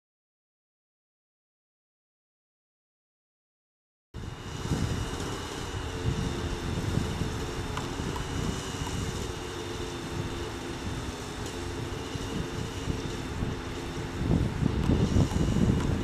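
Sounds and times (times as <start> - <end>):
model helicopter engine running: 4.2 - 16.0
wind buffeting microphone: 4.2 - 16.0.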